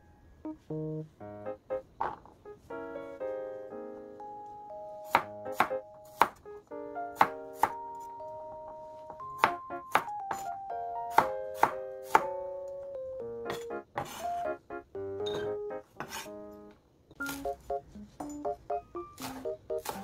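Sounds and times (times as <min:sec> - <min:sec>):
background music: 0:00.0 - 0:20.0
knife chopping on cutting board: 0:05.1 - 0:06.4, 0:07.2 - 0:07.8, 0:09.4 - 0:12.3, 0:13.5 - 0:14.3, 0:16.0 - 0:16.3, 0:19.2 - 0:20.0.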